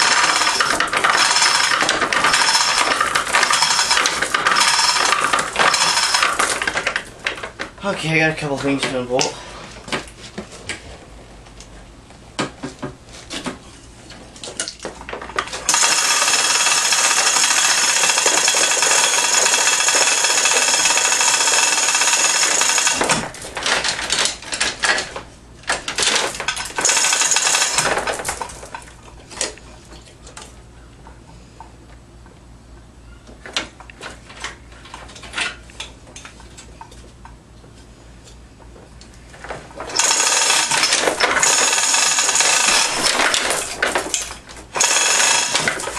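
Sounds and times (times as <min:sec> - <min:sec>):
power tool running: 0:00.0 - 0:06.7, 0:15.7 - 0:23.3, 0:26.8 - 0:28.2, 0:39.9 - 0:45.9
hand tools clicking and knocking: 0:00.0 - 0:07.8, 0:14.4 - 0:30.0, 0:39.9 - 0:45.9.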